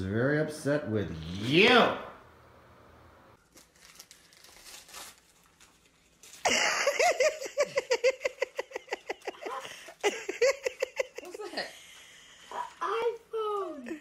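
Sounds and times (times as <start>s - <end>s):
gift packaging crinkling: 3.4s - 7.3s
child laughing excitedly: 6.5s - 11.6s.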